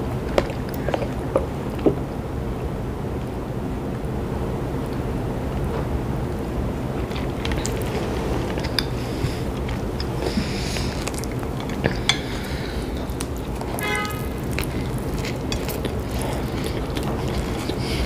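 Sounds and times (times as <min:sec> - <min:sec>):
sandwich squishing: 0:06.9 - 0:18.0
biting into sandwich: 0:07.0 - 0:18.0.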